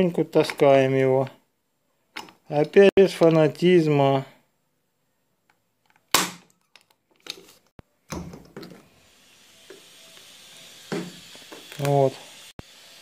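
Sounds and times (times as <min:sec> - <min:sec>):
faint hiss: 0:08.7 - 0:13.0.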